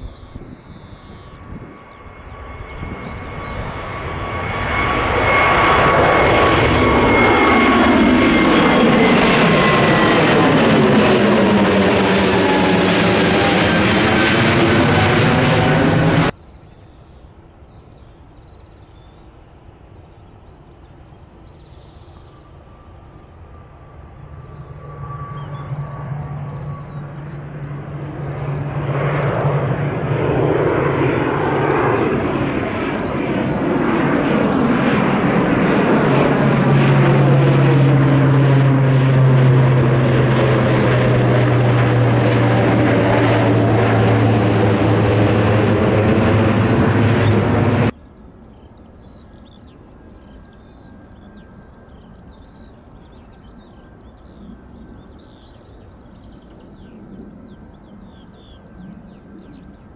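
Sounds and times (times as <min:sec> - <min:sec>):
aircraft engines passing: 0:00.0 - 0:59.9
faint outdoor background: 0:16.1 - 0:59.9.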